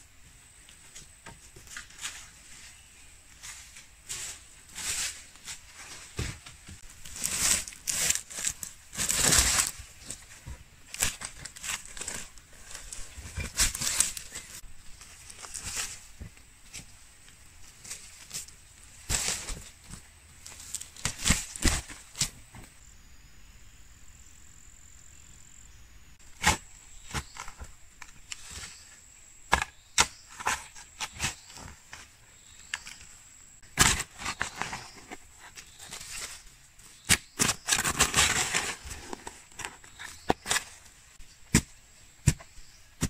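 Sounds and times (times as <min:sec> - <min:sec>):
scraping and crumbling dirt: 0:00.8 - 0:22.8, 0:26.2 - 0:43.0
shovel striking stony soil: 0:33.7 - 0:34.9, 0:41.5 - 0:42.6.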